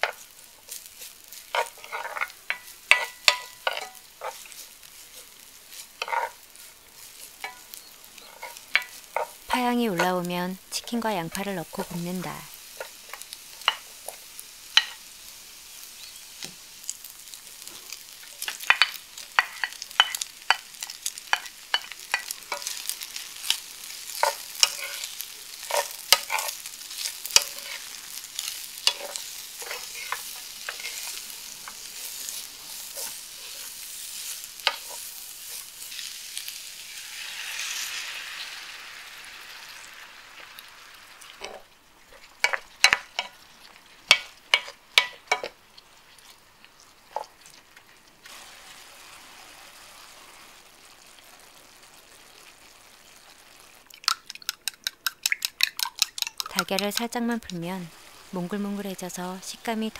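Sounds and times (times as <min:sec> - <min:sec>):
spatula scraping pan: 0:00.0 - 0:10.2, 0:17.7 - 0:38.0
food sizzling in oil: 0:00.0 - 0:59.9.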